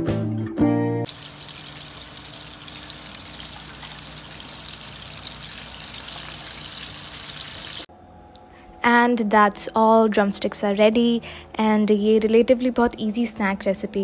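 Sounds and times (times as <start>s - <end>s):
chicken frying in hot oil: 1.1s - 7.9s.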